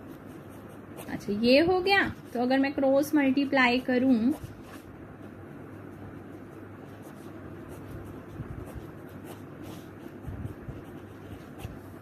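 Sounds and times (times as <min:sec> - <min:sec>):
pen scratching on paper: 0:00.0 - 0:02.6, 0:03.7 - 0:05.0, 0:05.7 - 0:12.0.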